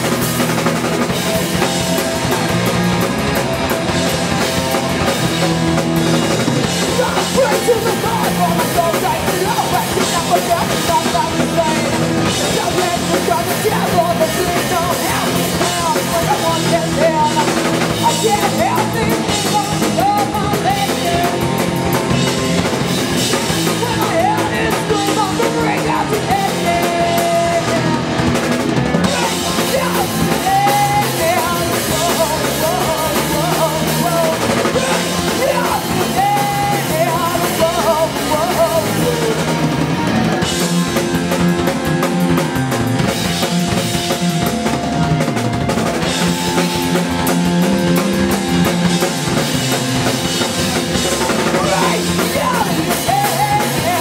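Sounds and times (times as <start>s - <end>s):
bass guitar: 0.0s - 54.0s
drum kit: 0.0s - 54.0s
electric guitar: 0.0s - 54.0s
woman singing: 7.0s - 21.4s, 29.0s - 39.4s, 51.6s - 54.0s.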